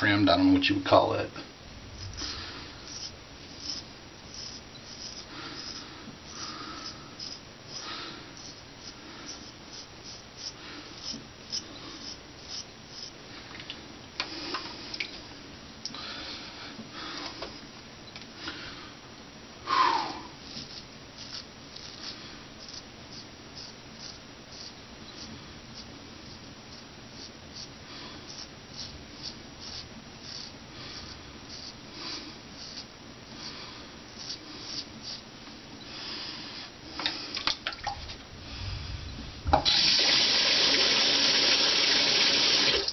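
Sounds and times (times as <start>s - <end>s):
steady hiss: 0.0s - 37.4s, 38.0s - 42.9s
razor scraping stubble: 1.9s - 13.2s, 20.4s - 35.3s.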